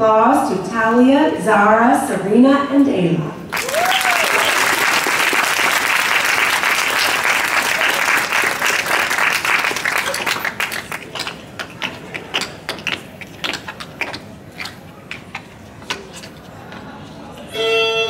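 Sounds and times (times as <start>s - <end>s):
audience applauding: 3.5s - 11.9s.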